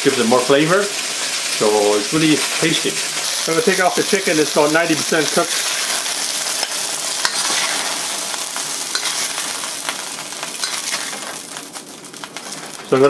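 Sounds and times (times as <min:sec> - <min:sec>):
oil sizzling in wok: 0:00.0 - 0:13.0
metal spatula scraping wok: 0:03.1 - 0:12.9.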